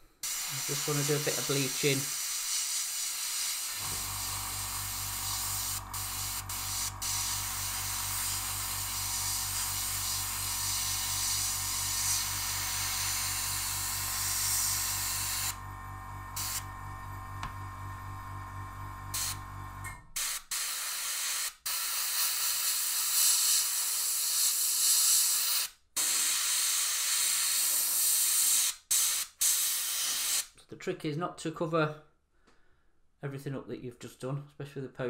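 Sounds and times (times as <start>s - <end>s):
airbrush spraying air hiss: 0.0s - 15.6s, 16.4s - 16.7s, 19.2s - 19.4s, 20.2s - 30.4s
airbrush trigger releases: 0.2s - 15.6s
low motor hum: 3.8s - 20.2s.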